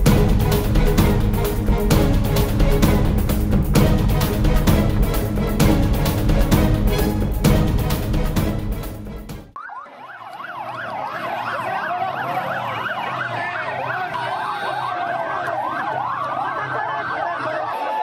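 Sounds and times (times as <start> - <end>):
background music: 0.0 - 9.6
emergency sirens wailing: 9.6 - 18.0.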